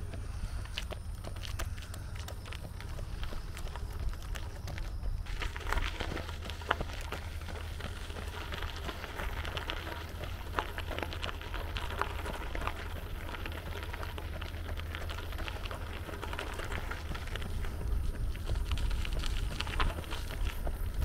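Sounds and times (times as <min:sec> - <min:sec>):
footsteps crunching on gravel: 0:00.0 - 0:21.0
steady low rumble: 0:00.0 - 0:21.0.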